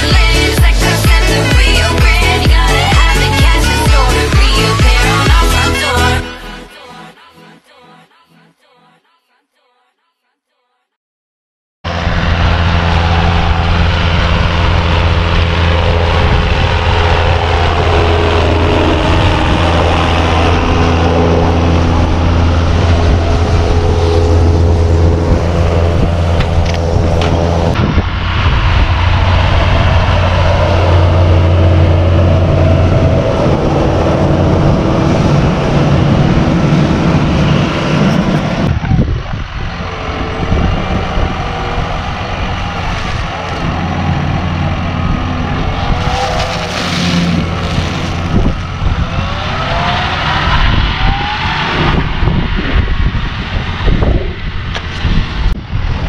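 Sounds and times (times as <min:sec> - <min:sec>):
diesel tractor engine humming: 0:00.0 - 0:06.7, 0:11.9 - 0:56.0
baler mechanical running noise: 0:11.9 - 0:56.0.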